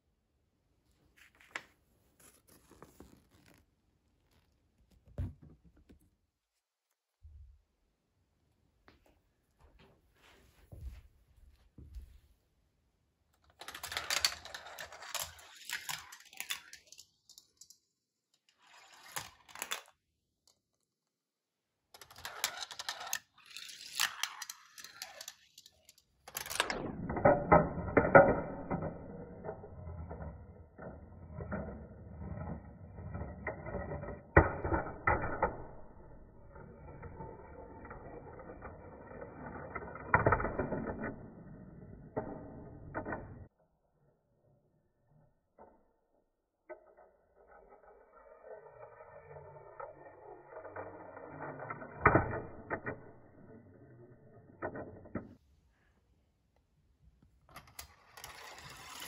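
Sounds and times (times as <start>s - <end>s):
marbles rolling through marble run: 13.5s - 20.0s, 21.9s - 43.5s, 46.7s - 55.4s, 57.5s - 59.0s.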